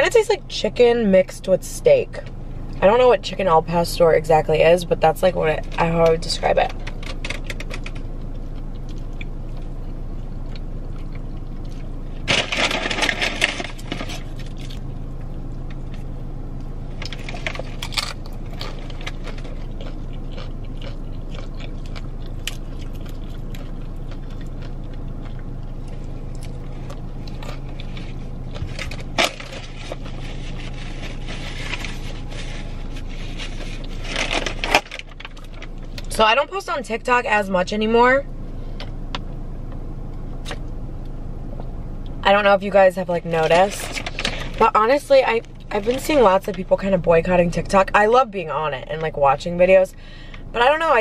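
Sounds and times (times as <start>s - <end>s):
steady low hum: 0.0s - 51.0s
chewing: 6.8s - 12.2s, 17.0s - 34.5s
paper rustling: 27.8s - 35.7s.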